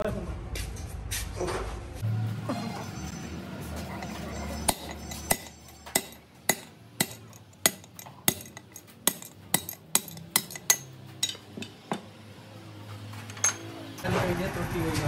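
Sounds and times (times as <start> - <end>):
hammer tapping on metal: 4.0 - 12.1.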